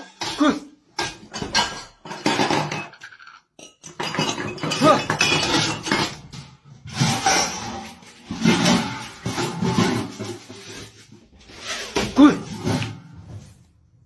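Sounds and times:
metal lids clattering: 0.0s - 11.0s.

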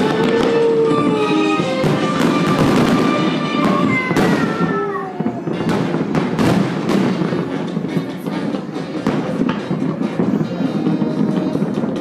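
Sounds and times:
fireworks bursting and crackling: 0.0s - 12.0s
music playing: 0.0s - 12.0s.

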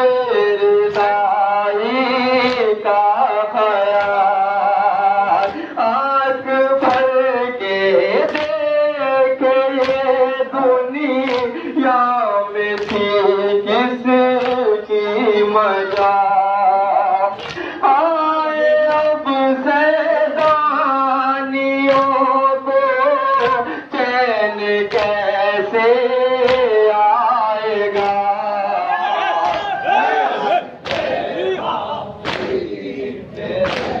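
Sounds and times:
voices chanting a lament: 0.0s - 34.0s
hands slapping chests: 0.8s - 1.2s, 2.4s - 2.8s, 3.8s - 4.4s, 5.3s - 5.7s, 6.8s - 7.2s, 8.2s - 8.6s, 9.7s - 10.2s, 11.2s - 11.6s, 12.7s - 13.2s, 14.3s - 14.8s, 15.9s - 16.2s, 17.3s - 17.8s, 18.8s - 19.2s, 20.4s - 20.8s, 21.8s - 22.3s, 23.2s - 23.7s, 24.8s - 25.3s, 26.3s - 26.8s, 27.9s - 28.4s, 29.3s - 31.3s, 32.2s - 32.8s, 33.5s - 34.0s.

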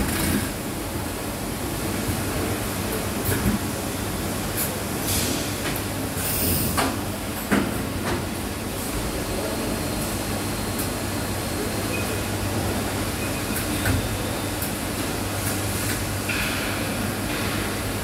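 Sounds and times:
machine mechanical hum: 0.0s - 18.0s.

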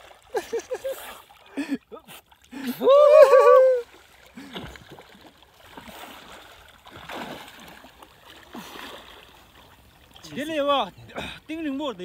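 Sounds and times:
swimming strokes splashing water: 0.0s - 12.0s
person shouting: 2.8s - 3.8s.

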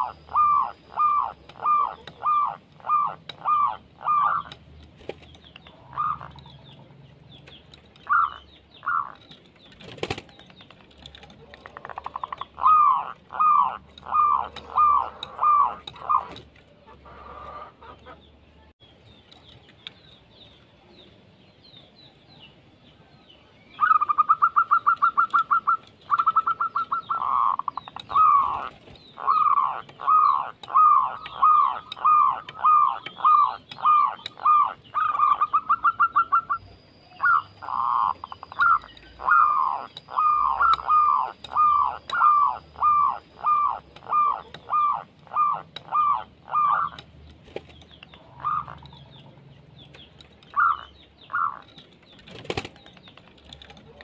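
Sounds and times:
dove cooing: 0.0s - 4.6s, 5.6s - 6.8s, 8.1s - 9.2s, 11.4s - 18.2s, 23.8s - 47.0s, 48.2s - 49.1s, 50.5s - 51.7s.

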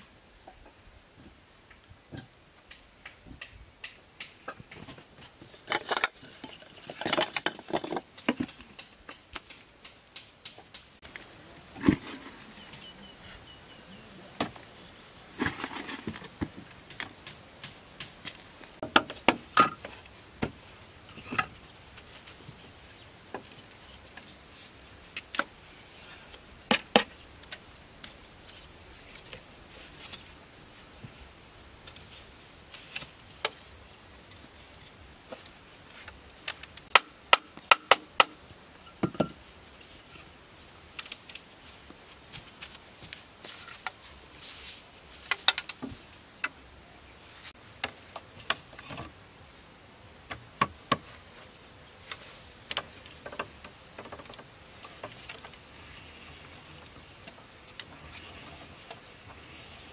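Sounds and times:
bamboo knocking and tapping: 7.4s - 11.1s, 15.4s - 20.6s, 36.5s - 38.4s, 50.3s - 51.1s.

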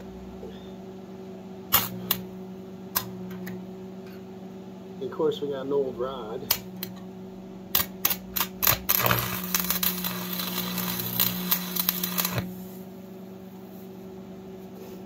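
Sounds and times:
welder transformer hum: 0.0s - 15.0s
welding rod crackles: 1.7s - 2.2s, 7.8s - 12.6s
welding arc crackling hiss: 1.7s - 2.3s, 7.7s - 12.8s.

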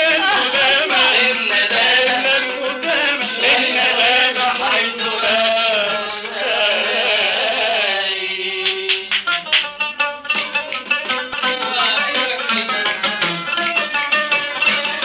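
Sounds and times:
man singing ornamented melody: 0.0s - 8.9s, 11.4s - 12.6s
qanun plucks: 0.0s - 15.0s.

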